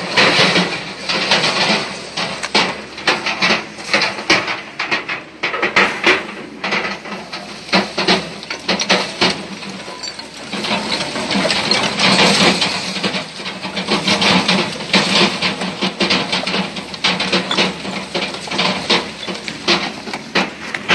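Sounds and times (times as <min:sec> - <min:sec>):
rubbish tumbling and clattering: 0:00.0 - 0:20.9.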